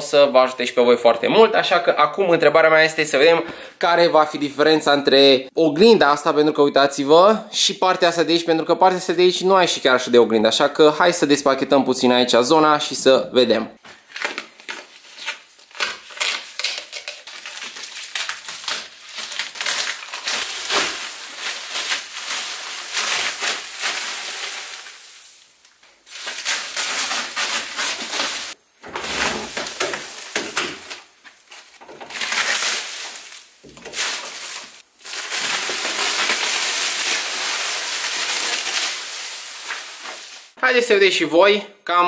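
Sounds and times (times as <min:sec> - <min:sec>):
plastic sheeting crinkling: 0:14.0 - 0:40.6
masking tape peeling: 0:14.1 - 0:25.0, 0:25.8 - 0:40.6.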